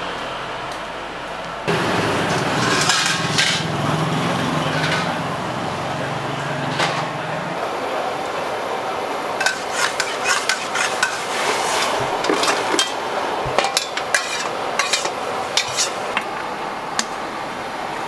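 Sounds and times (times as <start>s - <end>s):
metal spatula scraping a wok: 2.4s - 3.7s, 9.4s - 13.0s, 13.6s - 16.2s.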